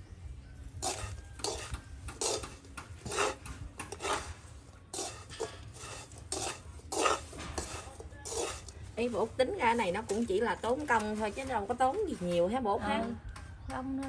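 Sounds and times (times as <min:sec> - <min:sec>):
chopsticks scraping a metal pan: 0:00.8 - 0:11.7.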